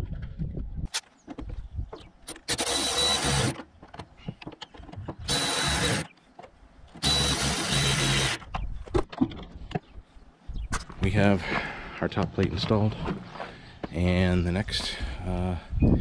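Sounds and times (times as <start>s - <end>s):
electric ratchet whirring: 2.3s - 3.6s, 5.3s - 6.1s, 7.0s - 8.5s.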